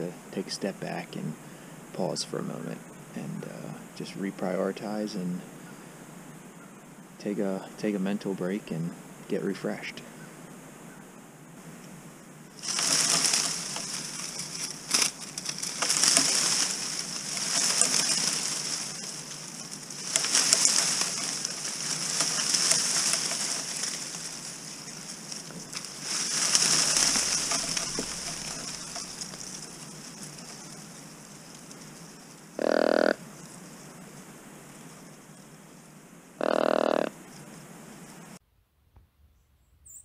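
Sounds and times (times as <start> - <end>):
dry leaves rustling: 11.6 - 38.3.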